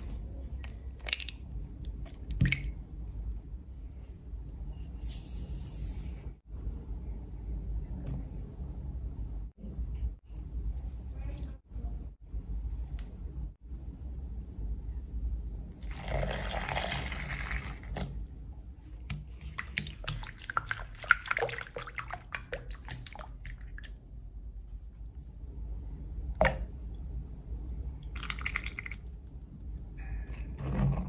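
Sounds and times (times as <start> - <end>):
low steady hum: 0.0 - 31.0
water pouring into glass bowl: 15.8 - 18.1.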